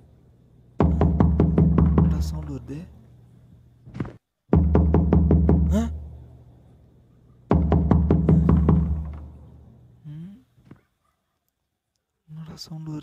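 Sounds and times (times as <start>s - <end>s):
fast percussive hits: 0.8s - 2.5s, 4.5s - 5.9s, 7.5s - 9.4s.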